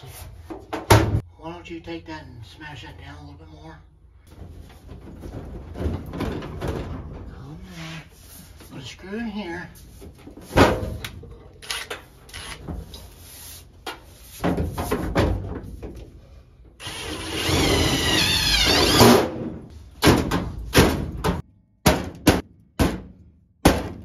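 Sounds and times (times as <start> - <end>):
knocks and clunks: 0.5 - 1.2, 4.3 - 7.5, 13.9 - 16.2, 19.0 - 24.0
power drill driving screw into metal: 11.6 - 12.6, 16.8 - 19.2
sharp knocks: 20.0 - 24.0.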